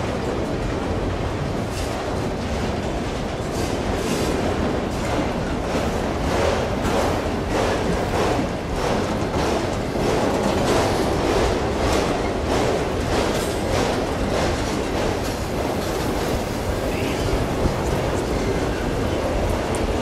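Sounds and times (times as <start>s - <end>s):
steel wheels rumbling on rails: 0.0s - 20.0s.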